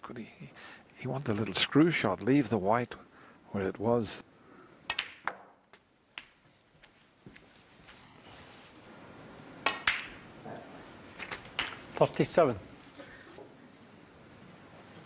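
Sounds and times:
snooker balls clicking: 4.8 - 6.4, 9.6 - 10.2, 11.2 - 12.0
quiet arena hush: 6.3 - 15.0.

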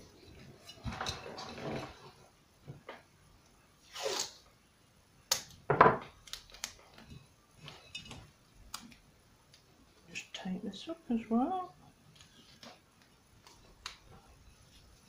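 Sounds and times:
tape tearing swish: 3.9 - 4.4.

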